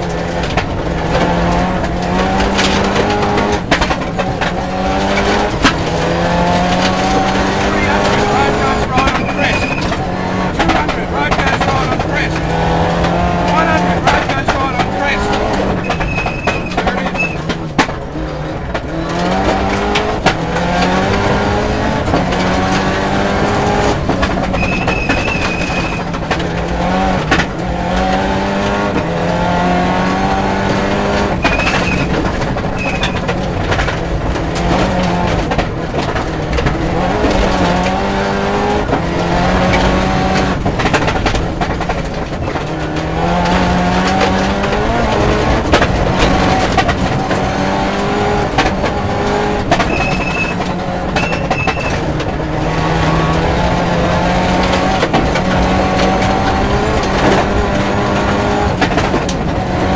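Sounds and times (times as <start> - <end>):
car engine revving: 0.0 - 59.9
short high beeps: 15.8 - 17.4, 51.2 - 52.0.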